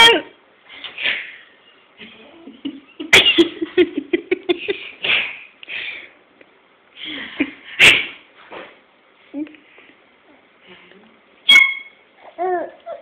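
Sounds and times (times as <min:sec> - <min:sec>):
baby babbling: 0:12.2 - 0:13.0.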